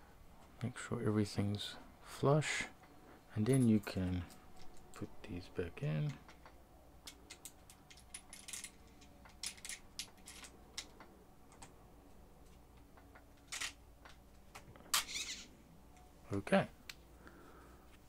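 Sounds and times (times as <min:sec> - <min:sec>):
small metal parts clicking: 0:06.0 - 0:11.7, 0:12.8 - 0:14.2.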